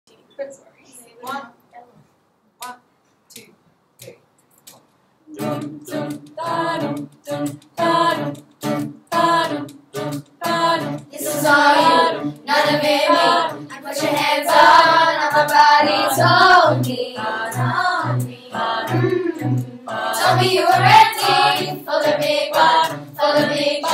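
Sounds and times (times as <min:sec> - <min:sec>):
strummed acoustic guitar: 0:05.3 - 0:23.9
girls choir singing pop song: 0:05.4 - 0:23.9.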